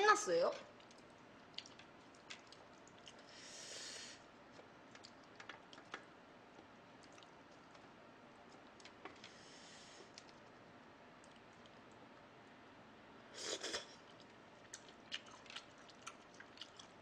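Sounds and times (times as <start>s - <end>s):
soft hiss: 0.0s - 15.1s
wet squishing of meat: 0.7s - 3.4s, 14.0s - 17.0s.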